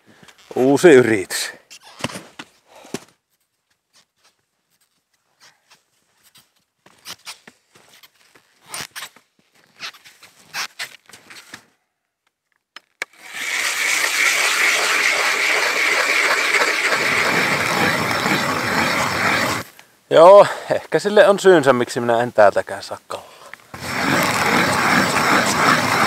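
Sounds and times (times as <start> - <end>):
ice auger grinding into ice: 13.0 - 19.7, 23.8 - 26.0.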